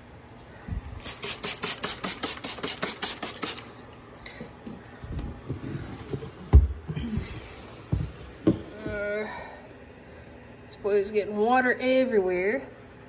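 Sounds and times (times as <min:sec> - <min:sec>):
spray bottle hissing: 0:01.0 - 0:03.7.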